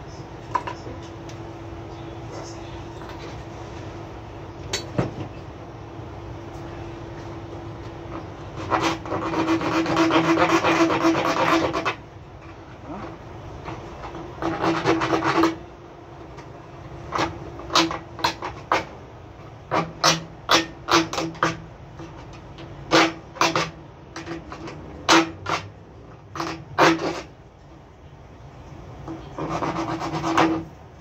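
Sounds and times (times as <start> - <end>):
knife scraping plastic pipe: 7.8 - 15.7, 16.3 - 27.4, 29.0 - 30.8.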